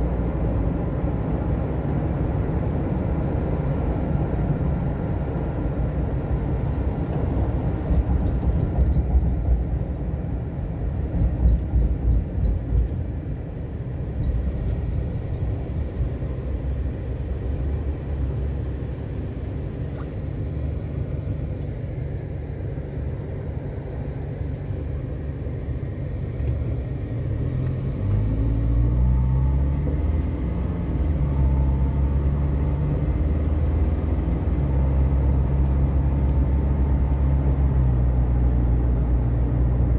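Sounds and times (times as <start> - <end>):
car engine rumble from inside: 0.0 - 39.9.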